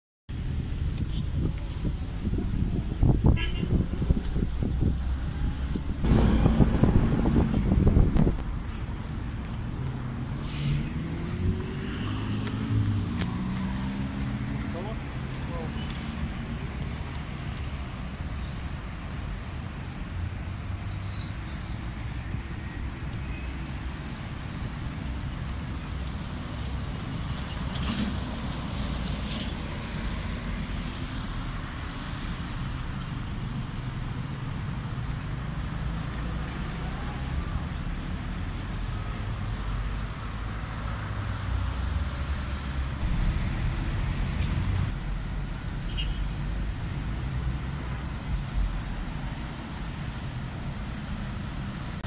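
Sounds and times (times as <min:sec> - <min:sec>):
road traffic passing: 0:00.3 - 0:52.0.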